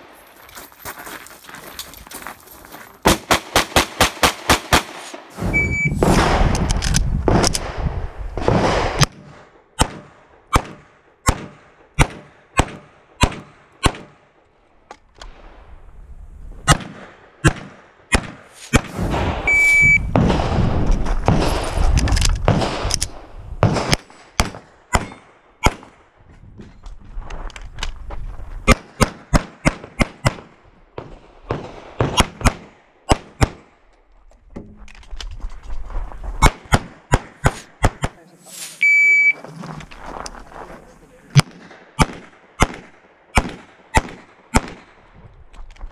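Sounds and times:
pistol shots: 3.0s - 6.6s, 8.4s - 14.3s, 16.7s - 21.8s, 22.4s - 26.0s, 28.7s - 33.7s, 41.3s - 45.0s
electronic shot timer beep: 5.6s - 6.0s, 19.5s - 20.1s.

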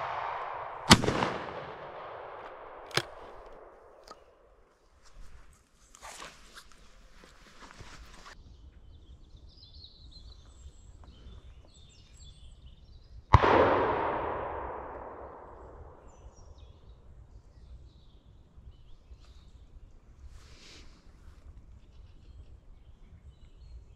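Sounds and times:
shotgun shot: 0.0s - 4.1s, 13.4s - 16.2s.

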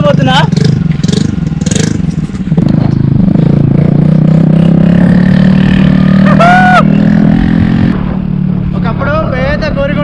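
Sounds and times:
scooter engine loud open exhaust: 0.0s - 8.5s.

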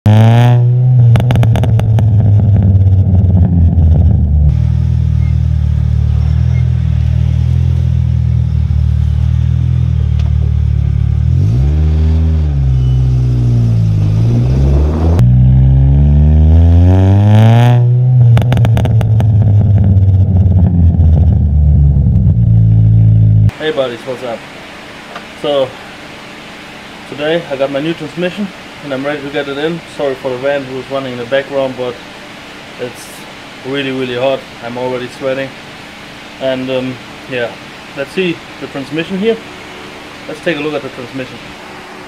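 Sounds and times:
exhaust crackles and pops: 0.0s - 11.2s, 13.3s - 23.6s
car engine revving: 0.0s - 23.6s.

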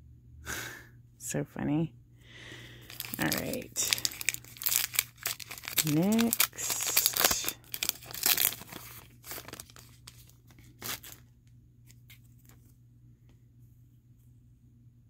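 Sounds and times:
foil wrapper crinkling and tearing: 2.8s - 11.3s.

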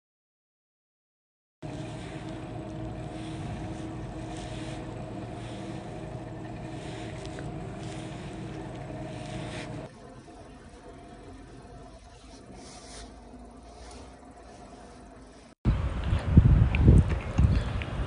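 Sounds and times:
exercise bike mechanical hum: 1.6s - 18.0s.

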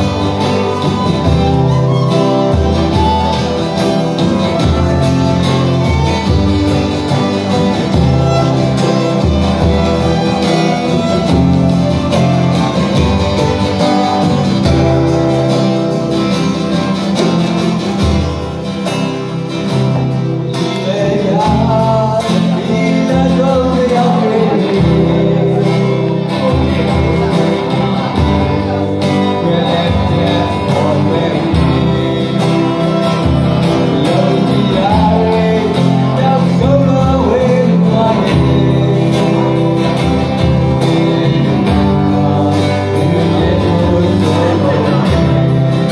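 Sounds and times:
violin melody: 0.0s - 22.2s, 30.4s - 36.4s
electric guitar: 0.0s - 45.9s
man singing: 0.0s - 45.9s
strummed acoustic guitars: 0.0s - 45.9s.

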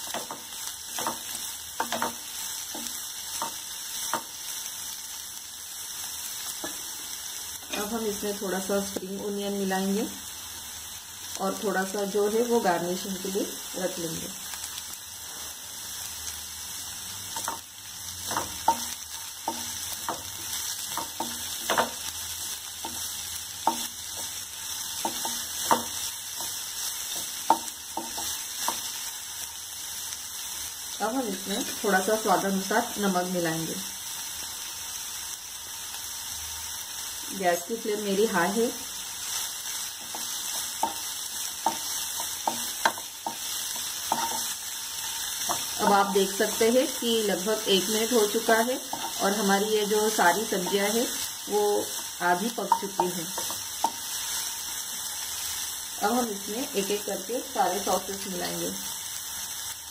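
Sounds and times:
spatula scraping and knocking pan: 0.0s - 4.4s, 17.3s - 22.1s, 22.8s - 29.0s, 39.9s - 46.8s, 48.0s - 51.0s
vegetables sizzling in a pan: 0.0s - 59.9s
spatula scraping a pan: 39.2s - 46.6s.

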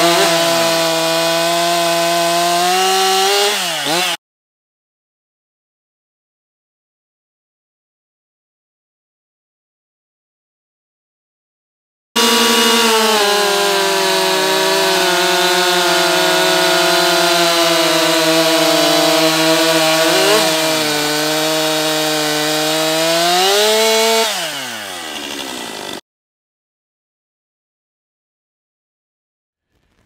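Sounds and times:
chainsaw revving down to idle: 0.0s - 4.2s, 12.2s - 26.0s
chainsaws cutting log: 0.0s - 4.2s, 12.2s - 26.0s.

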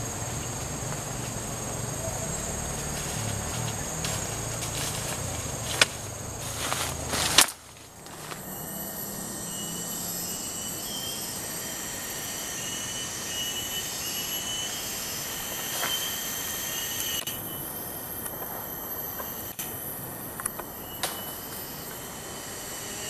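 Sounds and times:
shrill insect drone: 0.0s - 23.0s
footsteps through undergrowth: 2.6s - 8.6s.

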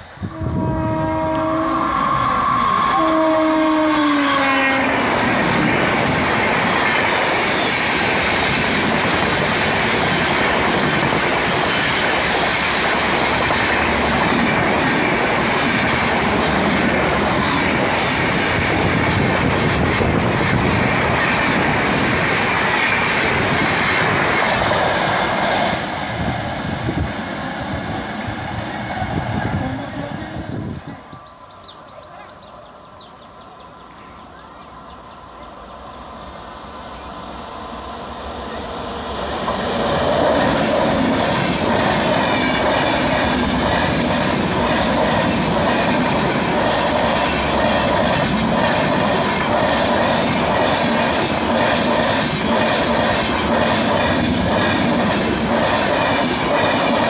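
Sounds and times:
train wheel and rail noise: 0.0s - 57.0s
locomotive horn blasts: 0.2s - 5.0s.

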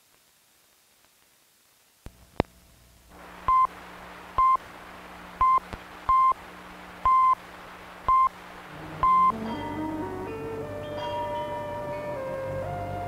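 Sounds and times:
film soundtrack hiss: 0.0s - 13.0s
short electronic beeps: 9.0s - 9.4s.

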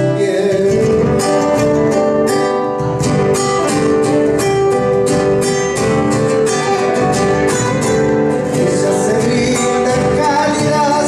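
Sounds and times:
acoustic guitar strumming: 0.0s - 11.0s.

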